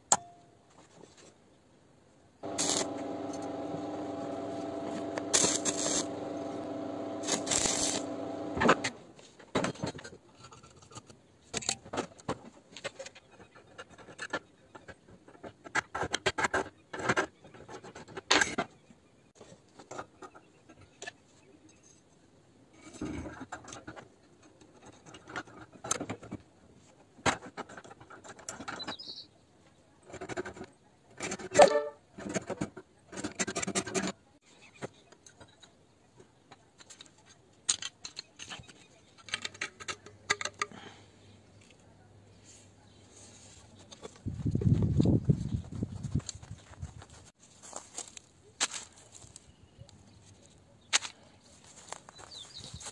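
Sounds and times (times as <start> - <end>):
welding arc buzzing and crackling: 2.4 - 9.0
metal tools clicking and scraping: 5.0 - 6.2.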